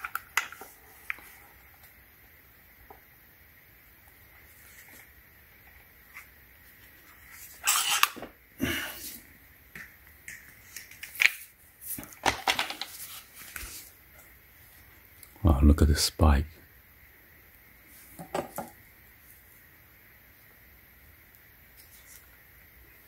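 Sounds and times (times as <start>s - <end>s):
plastic tool head rustling and clattering: 10.9s - 13.8s.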